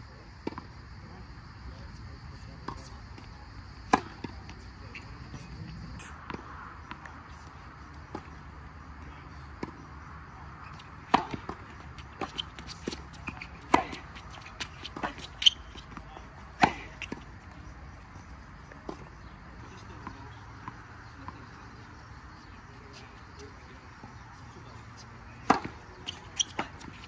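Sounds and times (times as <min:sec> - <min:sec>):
tennis ball hit by racket: 0:03.9 - 0:04.4, 0:10.8 - 0:17.2, 0:25.4 - 0:27.0.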